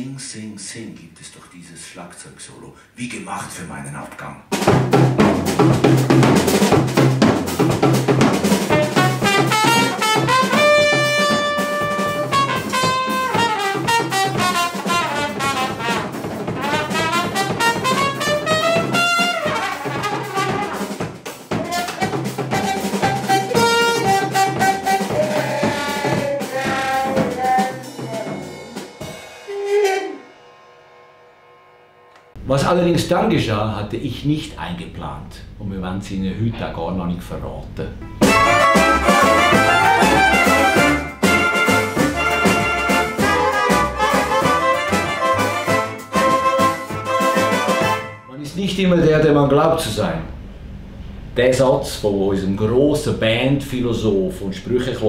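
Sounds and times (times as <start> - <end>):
trumpet playing jazz: 4.5 - 30.6, 38.1 - 48.8
drum kit beating: 4.5 - 30.7, 37.9 - 49.4.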